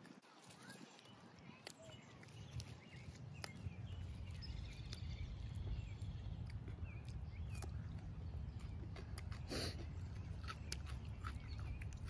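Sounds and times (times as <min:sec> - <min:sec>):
raw vegetables being chewed: 0:00.0 - 0:12.0
small birds chirping: 0:00.2 - 0:12.0
wind rumble on microphone: 0:02.4 - 0:12.0.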